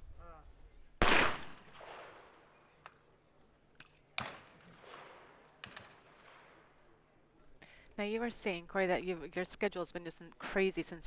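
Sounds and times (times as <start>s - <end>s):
shotgun shots echoing: 1.0s - 2.4s, 4.2s - 6.7s.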